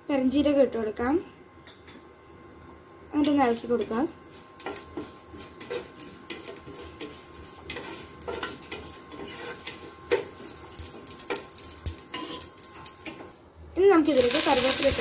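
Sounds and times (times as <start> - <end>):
light sizzle: 3.1 - 15.0
spatula scraping a pan: 4.6 - 13.3.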